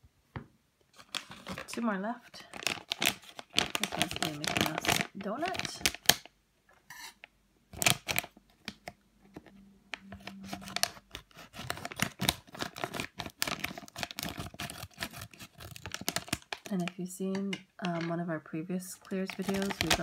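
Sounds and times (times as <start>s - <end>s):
plastic bag crinkling: 0.9s - 6.3s, 7.7s - 9.0s, 10.0s - 18.1s, 18.9s - 20.0s.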